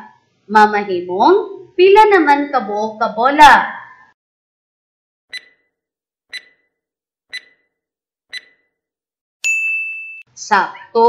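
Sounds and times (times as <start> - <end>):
clock ticking: 5.3 - 5.7, 6.3 - 6.7, 7.3 - 7.6, 8.3 - 8.6
bell ding: 9.4 - 10.3.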